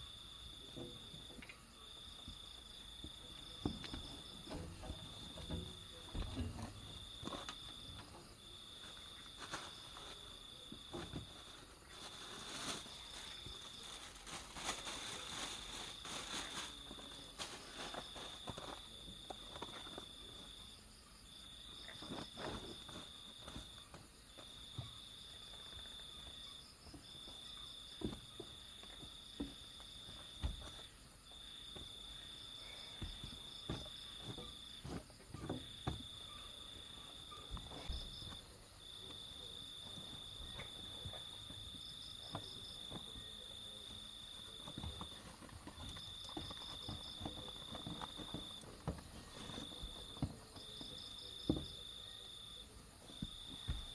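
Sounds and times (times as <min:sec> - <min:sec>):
crickets trilling: 0:00.0 - 0:53.9
sleeping mat knocks and rustling: 0:32.9 - 0:36.2.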